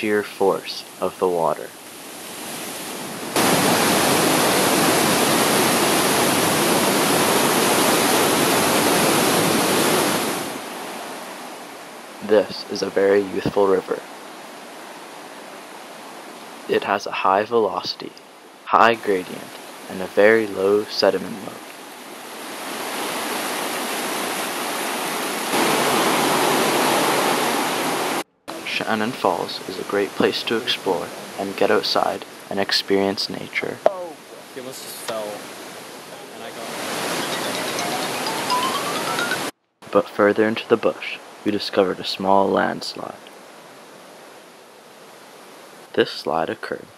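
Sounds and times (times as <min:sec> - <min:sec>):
waterfall rushing over rock: 0:02.0 - 0:11.5, 0:22.2 - 0:28.2, 0:34.6 - 0:39.4.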